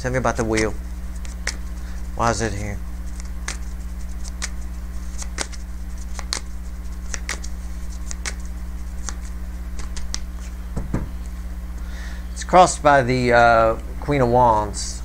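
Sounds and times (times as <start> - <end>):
low hum: 0.0 - 15.0
cards being shuffled: 0.4 - 10.6.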